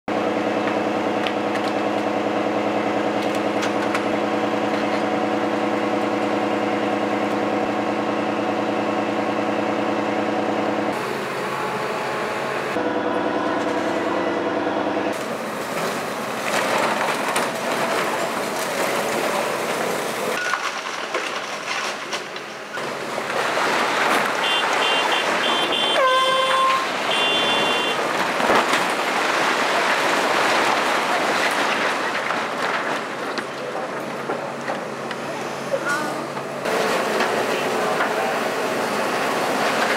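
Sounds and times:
excavator diesel engine running: 0.1 - 39.9
building walls crashing down: 15.1 - 34.8.

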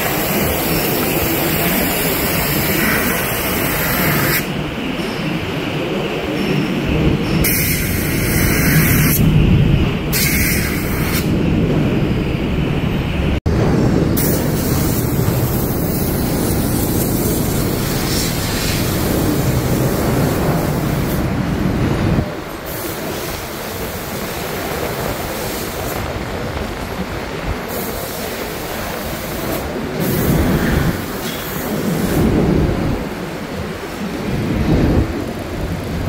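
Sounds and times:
compressed-air spray gun hissing: 0.0 - 4.5, 14.2 - 19.6.

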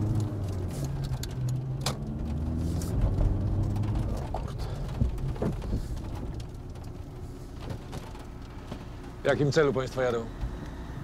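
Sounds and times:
car engine rumble in cabin: 0.0 - 11.0
road noise: 0.0 - 11.0.

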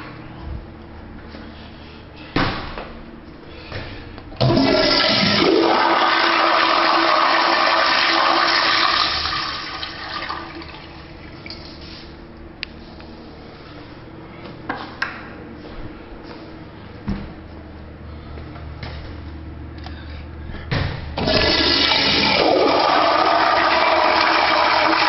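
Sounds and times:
toilet flushing: 4.4 - 11.5, 21.2 - 25.0.

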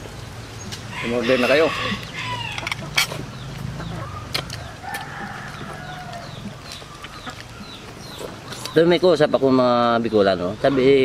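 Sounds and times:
rooster crowing: 0.9 - 3.0, 4.0 - 6.6.

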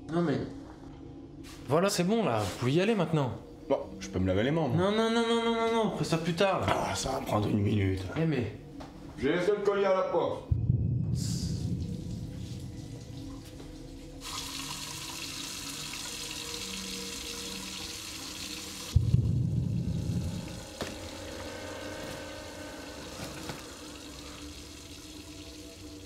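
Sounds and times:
low rumble: 10.4 - 13.4, 18.9 - 25.8
water running from tap: 11.8 - 22.2, 22.8 - 26.0.

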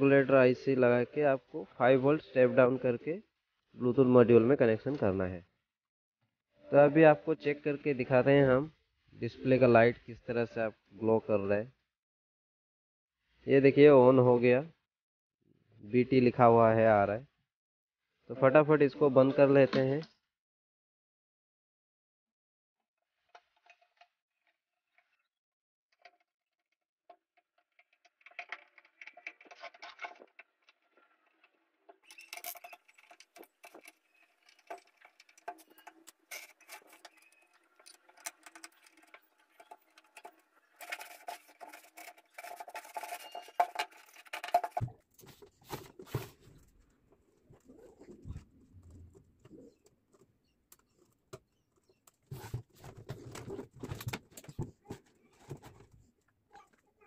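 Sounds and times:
screwdriver clicking and scraping: 32.0 - 46.7
knocks and rubbing: 32.4 - 50.2.

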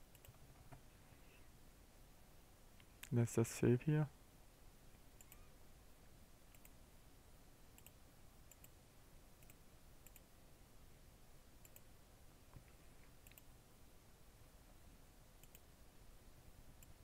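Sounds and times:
low hiss: 0.0 - 17.0
computer mouse clicks: 0.1 - 0.4, 5.2 - 5.5, 6.5 - 6.8, 7.8 - 8.8, 9.4 - 10.3, 11.6 - 11.9, 13.2 - 13.5, 15.4 - 15.7.

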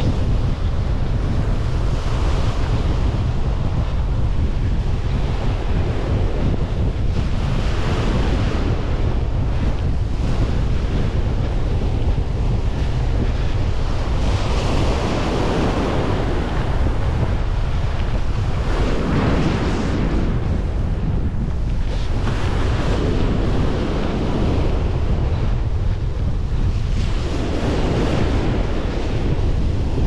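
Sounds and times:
surf breaking on a beach: 0.0 - 30.0
wind buffeting microphone: 0.0 - 30.0.

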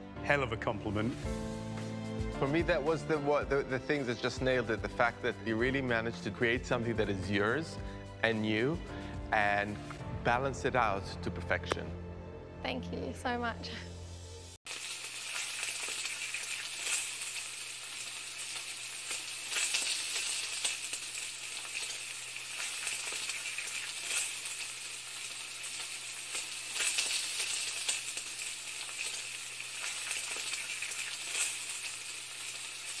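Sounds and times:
food sizzling in a hot pan: 1.1 - 6.0, 14.4 - 33.0
crackles and pops: 14.7 - 33.0.

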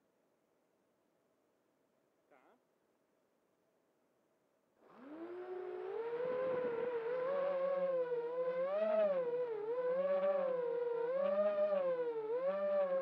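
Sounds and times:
drone propellers whining: 5.0 - 13.0.

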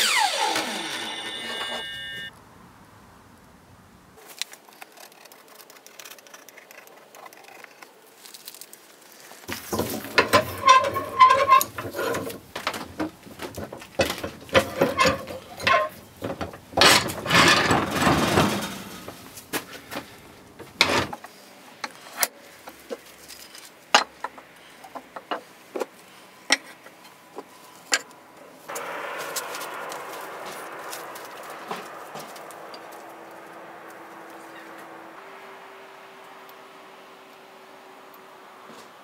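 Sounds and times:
wooden strips knocking and clicking: 9.5 - 19.7
vise screw squeaking and rattling: 9.8 - 12.3, 14.5 - 18.0.

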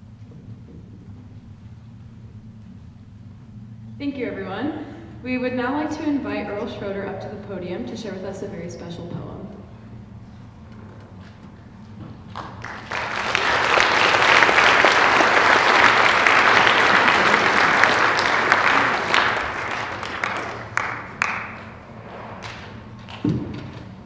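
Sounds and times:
audience applauding: 12.2 - 23.3.

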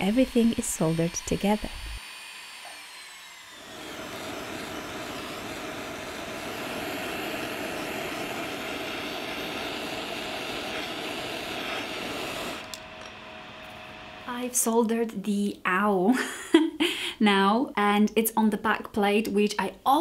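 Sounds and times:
soldering torch flame hissing: 0.0 - 14.3.

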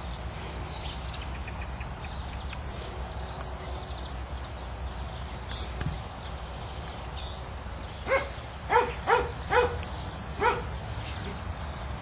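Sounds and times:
low background noise: 0.0 - 12.0
dog barking: 8.1 - 9.8, 10.4 - 10.7.

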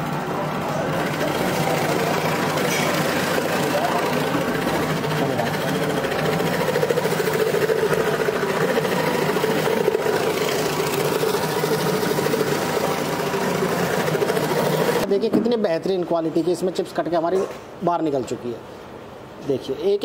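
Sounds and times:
potato slicer machine whirring: 0.0 - 15.1.

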